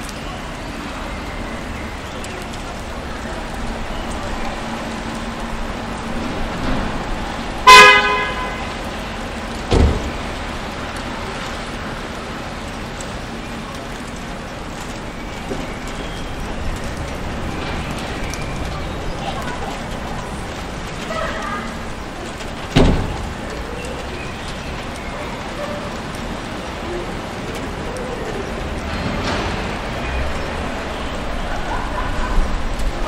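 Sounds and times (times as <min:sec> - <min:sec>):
street traffic rumbling: 0:00.0 - 0:33.0
car horn honk: 0:07.6 - 0:08.7.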